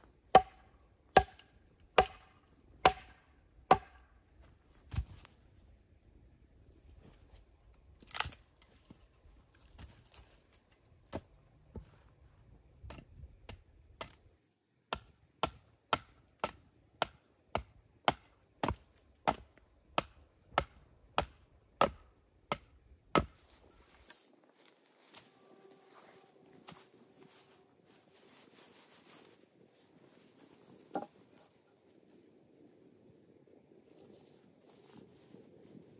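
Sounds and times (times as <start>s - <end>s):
axe chopping into a log: 0.3s - 1.4s, 2.0s - 4.0s, 14.9s - 23.4s.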